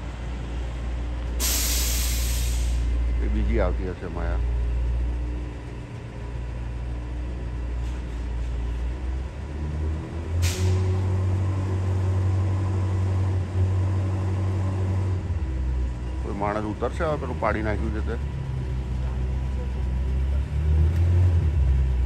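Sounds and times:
truck diesel engine running: 0:00.0 - 0:22.0
air brake hiss: 0:01.4 - 0:02.9, 0:10.4 - 0:10.9.

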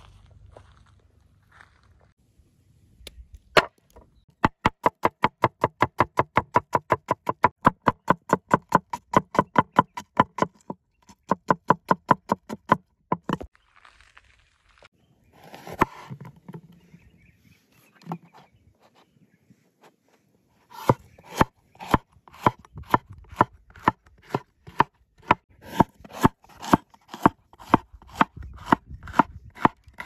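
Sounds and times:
cleaver chopping on wooden board: 0:04.4 - 0:13.5, 0:20.7 - 0:30.0.

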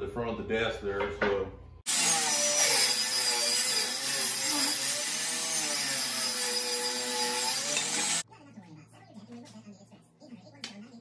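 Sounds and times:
table saw ripping wood: 0:01.9 - 0:08.2.

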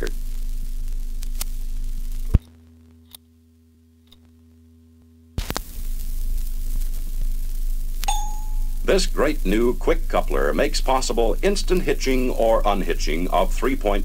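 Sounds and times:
needle click and crackle: 0:00.0 - 0:03.3, 0:05.4 - 0:07.2
turntable hum and surface hiss: 0:00.0 - 0:14.0.

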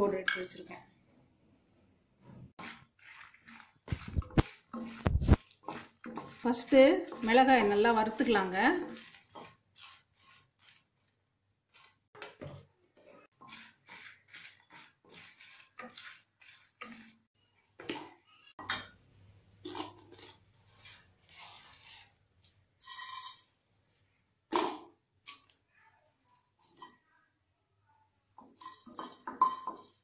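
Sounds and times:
spatula scraping chillies in a pan: 0:02.2 - 0:18.6, 0:19.4 - 0:24.2.

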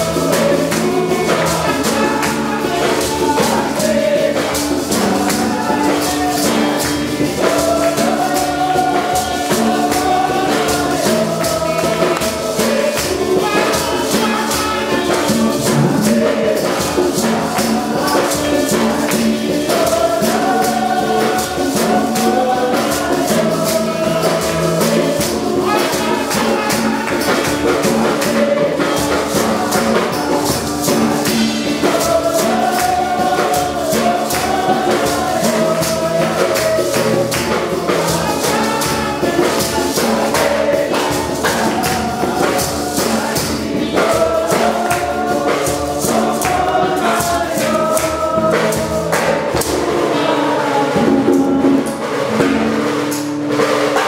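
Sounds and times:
guitar accompaniment: 0:00.0 - 0:54.0
shaken percussion beat: 0:00.0 - 0:54.0
women singing gospel song: 0:00.0 - 0:54.0.

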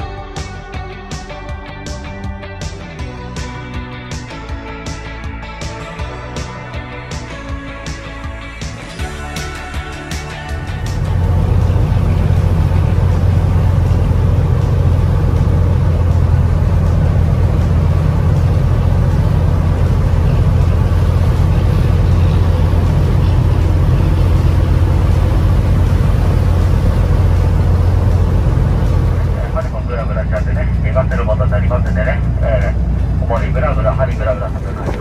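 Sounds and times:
boat engine drone: 0:00.0 - 0:35.0
water rushing along hull: 0:08.9 - 0:35.0.

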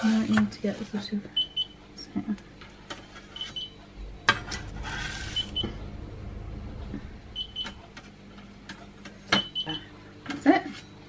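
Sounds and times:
spatula scraping baking tray: 0:00.0 - 0:01.1, 0:04.3 - 0:05.6.

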